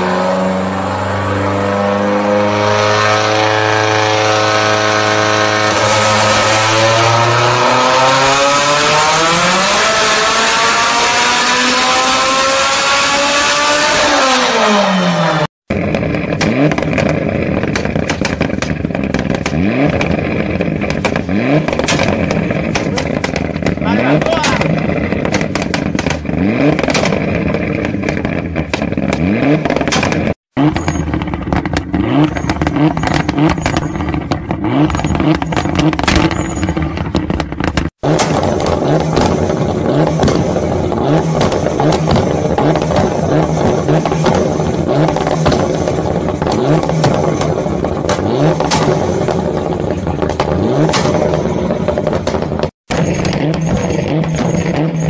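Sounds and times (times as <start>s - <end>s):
car engine revving: 0.0s - 55.0s
exhaust pops and bangs: 15.7s - 55.0s.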